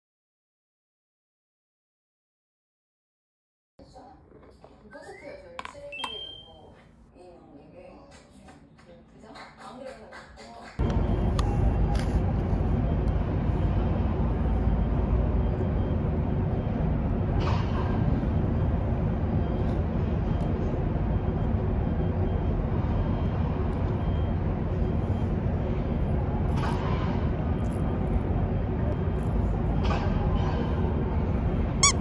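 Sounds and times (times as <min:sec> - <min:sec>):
city traffic rumble: 0:10.7 - 0:32.0.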